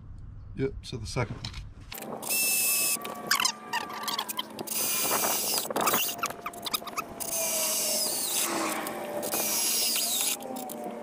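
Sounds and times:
cordless drill cutting: 2.2 - 11.0
high squeals of drill bit: 2.3 - 10.7.

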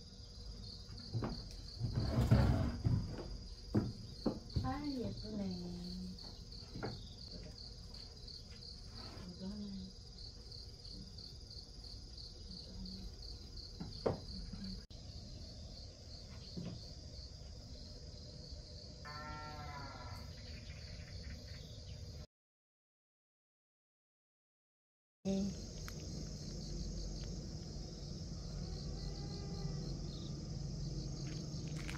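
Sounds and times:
crickets chirping: 0.0 - 22.3, 25.3 - 31.9.

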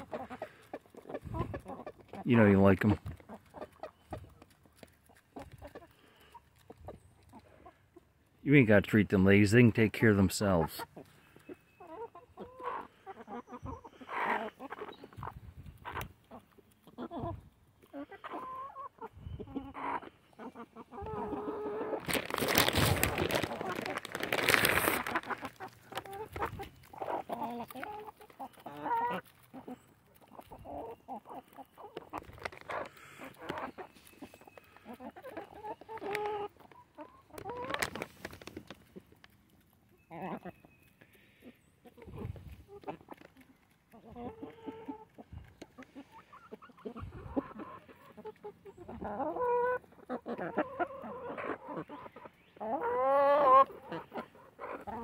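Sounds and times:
beaks pecking seeds from a hand: 0.0 - 7.9, 21.3 - 46.0
hens and rooster clucking: 0.0 - 55.0.

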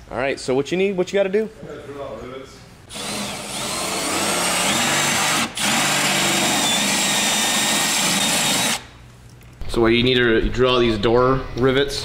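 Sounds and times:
cordless drill drilling rivets: 2.9 - 8.8.

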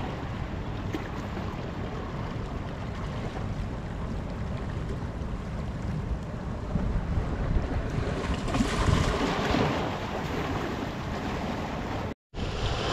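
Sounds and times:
wind rumbling on microphone: 0.0 - 12.9
waves splashing over rock: 7.8 - 12.9.

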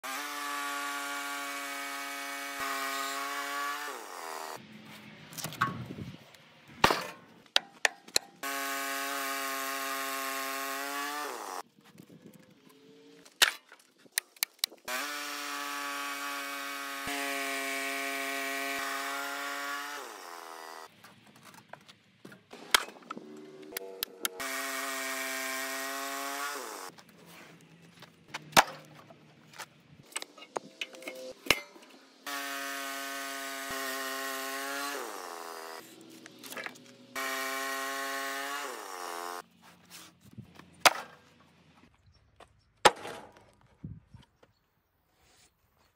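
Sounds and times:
bandsaw sawmill running: 0.0 - 4.6, 8.4 - 11.6, 14.9 - 20.9, 24.2 - 26.9, 32.2 - 39.5.

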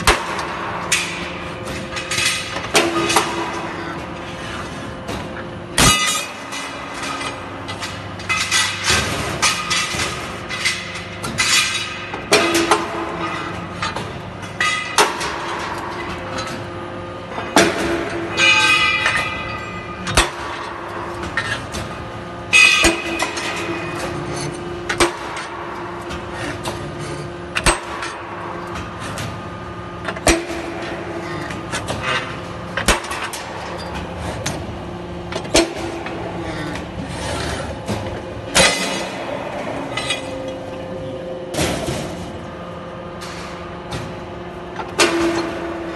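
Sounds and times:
machine hum: 0.0 - 45.9
metal clunks of punching machine: 17.4 - 26.8, 27.6 - 29.4, 37.8 - 42.4.

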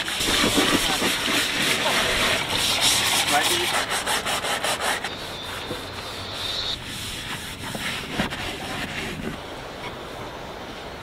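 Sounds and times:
cloth scrubbing inflatable hull: 0.0 - 9.4.

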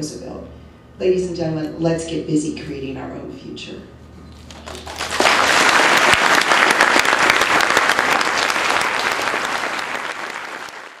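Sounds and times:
audience applauding: 4.5 - 11.0.

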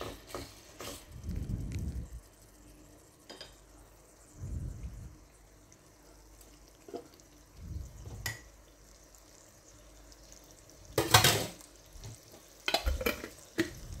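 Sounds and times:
food simmering in oil: 0.0 - 14.0
oil popping and spattering: 10.9 - 14.0.

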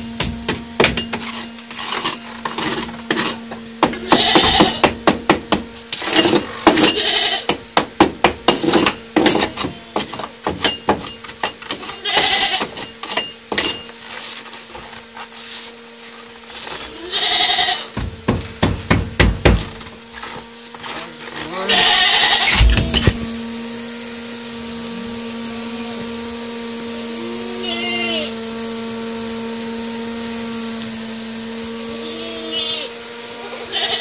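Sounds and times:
goats bleating: 4.0 - 4.8, 6.8 - 7.5, 11.9 - 12.7, 16.8 - 17.9, 21.5 - 23.0, 27.2 - 28.3, 31.9 - 34.0
sharp knocks and crunches: 18.0 - 21.6, 22.4 - 23.3.

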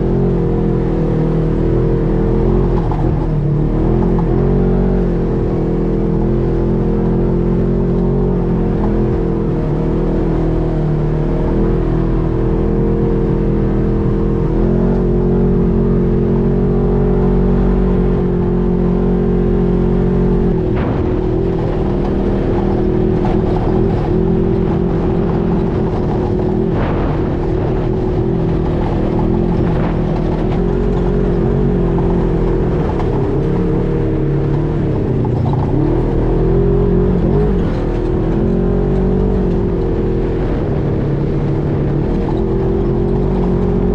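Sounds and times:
utv engine running: 0.0 - 43.9
vehicle knocks and rattles: 20.2 - 43.9.

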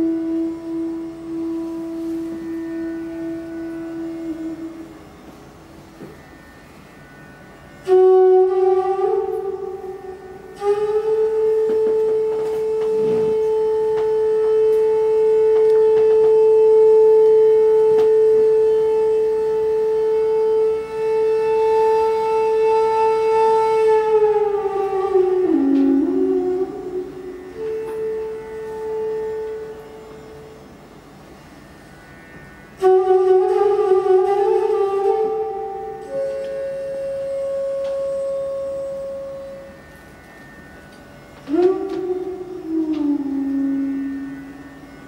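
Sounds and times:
bamboo flute long notes: 0.0 - 45.0.

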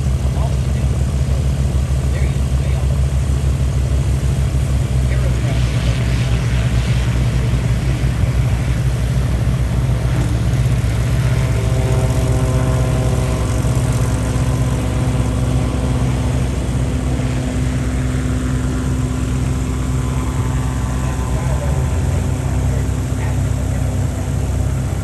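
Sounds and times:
gyroplane engine and propeller thrum: 0.0 - 25.0
higher engine tones: 0.0 - 25.0.

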